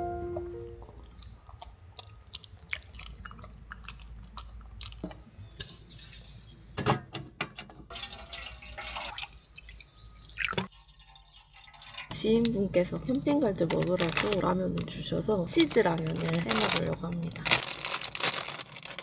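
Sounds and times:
water pouring into metal cup: 7.9s - 9.4s, 10.4s - 12.5s.

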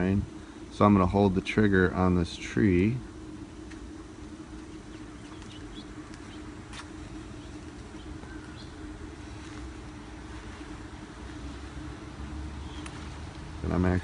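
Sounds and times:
light rain hiss: 0.0s - 14.0s
low steady hum: 0.0s - 14.0s
faint bird chirps: 4.6s - 6.6s, 7.2s - 9.3s, 12.6s - 13.1s.

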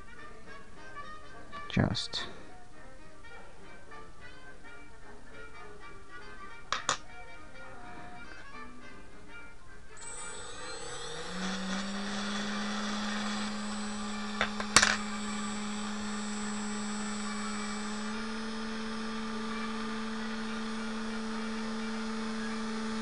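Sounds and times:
electric motor whining: 10.0s - 23.0s.

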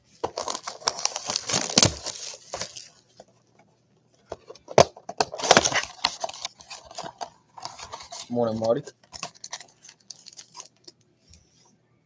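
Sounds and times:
plastic wrap crinkling and tearing: 0.2s - 3.0s, 5.2s - 10.9s.

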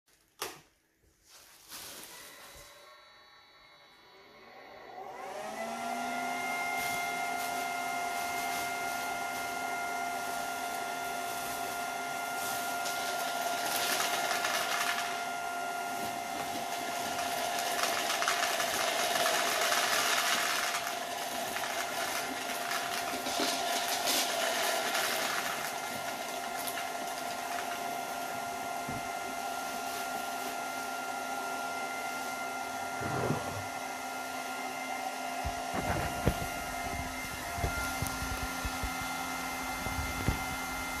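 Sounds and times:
electric fan whining: 2.1s - 41.0s
seeds rattling down wooden baffles: 17.6s - 26.9s.

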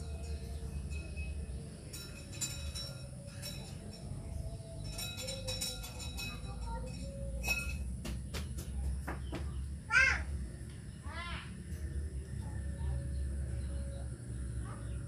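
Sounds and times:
low steady hum: 0.0s - 8.1s, 8.8s - 15.0s.

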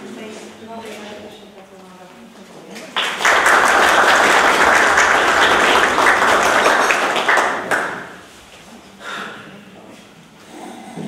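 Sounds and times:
room of people applauding: 2.9s - 8.4s.

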